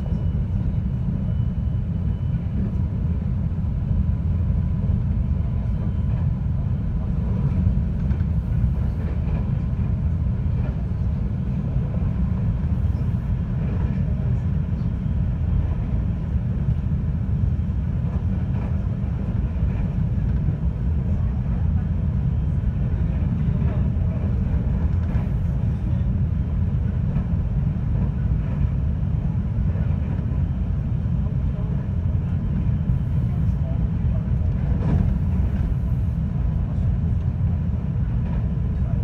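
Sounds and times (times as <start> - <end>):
train rumbling from inside: 0.0 - 39.0.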